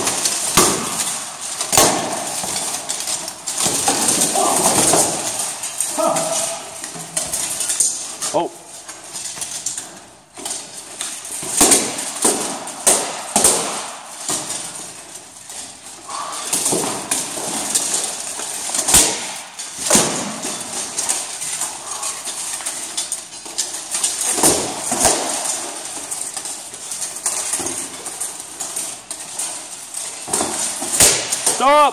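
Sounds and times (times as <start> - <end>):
armour plates clanking: 0.0 - 31.9
swords striking armour: 11.4 - 14.6, 16.1 - 20.7.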